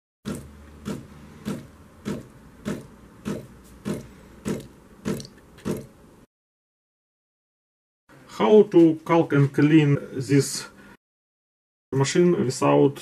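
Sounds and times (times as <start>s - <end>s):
liquid spurting into a jug: 0.3s - 5.9s
coffee machine hum: 0.3s - 6.0s.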